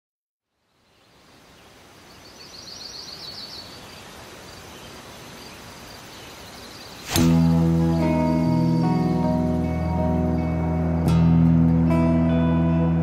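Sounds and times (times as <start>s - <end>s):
outdoor air hiss: 0.5s - 10.8s
bird chirping: 0.6s - 11.2s.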